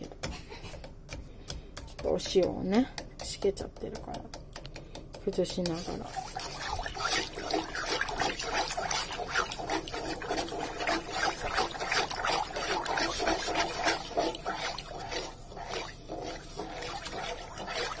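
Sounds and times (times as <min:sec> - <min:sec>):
water bubbling in pot: 0:05.7 - 0:18.0.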